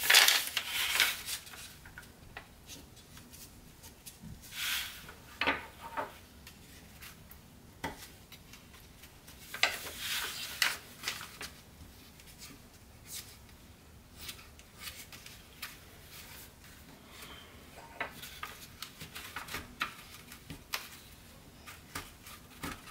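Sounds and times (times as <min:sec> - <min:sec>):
paper rustling and crinkling: 0:00.0 - 0:05.1, 0:08.0 - 0:13.6, 0:14.2 - 0:17.4, 0:18.0 - 0:22.9.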